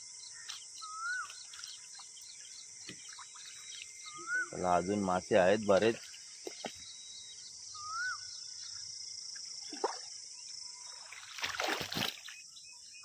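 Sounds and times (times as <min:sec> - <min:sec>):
high insect drone: 0:00.0 - 0:13.0
whistled call: 0:04.0 - 0:04.9, 0:07.7 - 0:08.3
water splashing: 0:10.9 - 0:12.4.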